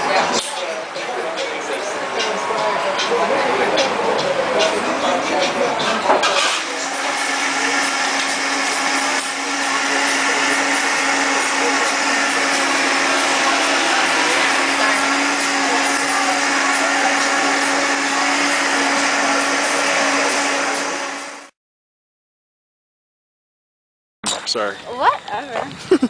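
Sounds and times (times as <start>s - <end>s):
blender motor running: 6.4s - 21.6s.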